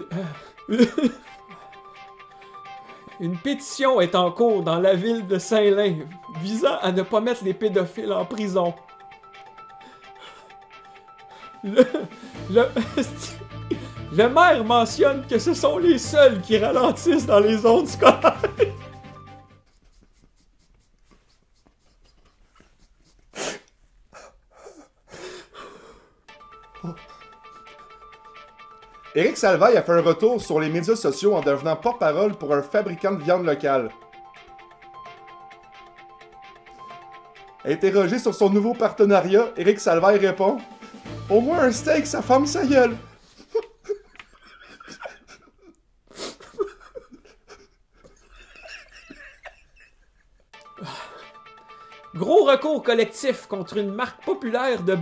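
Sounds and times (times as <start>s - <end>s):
stifled laughter: 0.0s - 1.7s, 11.6s - 13.9s, 17.9s - 18.9s, 26.8s - 27.9s, 43.2s - 51.2s
breathy bursts: 0.0s - 3.2s, 9.6s - 12.5s, 13.4s - 14.1s, 22.6s - 29.1s, 50.6s - 52.1s.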